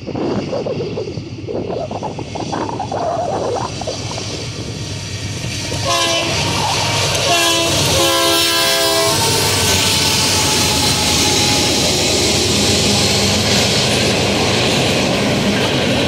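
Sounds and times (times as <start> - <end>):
train rumbling: 0.0 - 16.0
locomotive air horn blasts: 5.8 - 11.7.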